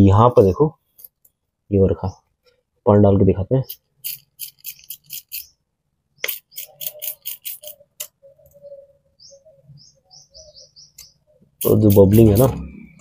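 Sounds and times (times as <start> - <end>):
bird chirping: 0.8 - 13.0
spray bottle squirts: 3.7 - 5.5, 6.2 - 7.8.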